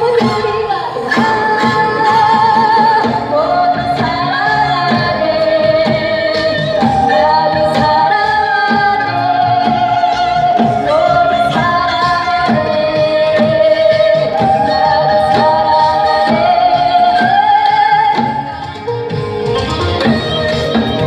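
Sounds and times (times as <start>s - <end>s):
woman singing into a microphone: 0.0s - 18.9s
flute: 0.0s - 21.0s.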